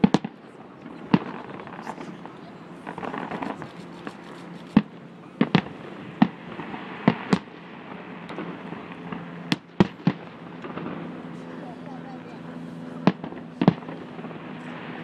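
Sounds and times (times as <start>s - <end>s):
firework shells bursting: 2.8s - 7.5s.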